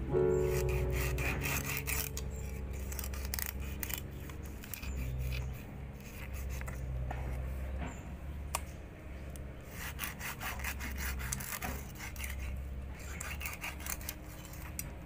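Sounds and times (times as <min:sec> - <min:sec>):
knife sawing through fish bone: 0:00.3 - 0:07.5, 0:09.6 - 0:14.8.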